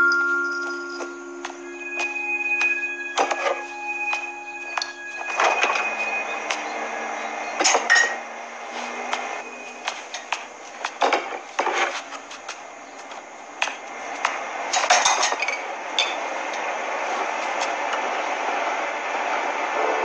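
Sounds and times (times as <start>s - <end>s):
glass jars clinking: 0.0s - 6.8s, 7.6s - 8.2s, 14.8s - 16.3s.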